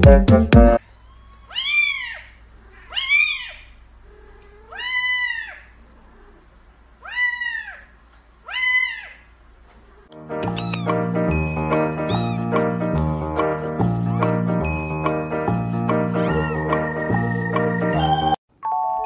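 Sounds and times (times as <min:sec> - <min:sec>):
kitten meowing: 0:00.8 - 0:05.7, 0:07.0 - 0:07.9, 0:08.5 - 0:09.2, 0:10.4 - 0:11.1, 0:12.0 - 0:13.3, 0:16.1 - 0:16.8.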